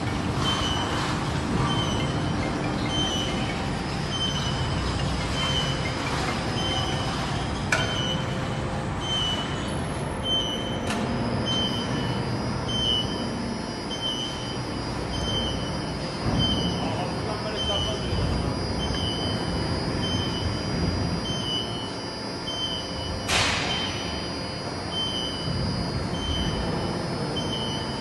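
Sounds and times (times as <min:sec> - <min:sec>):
crane motor rumble: 0:00.0 - 0:28.0
warning beeper: 0:10.2 - 0:28.0.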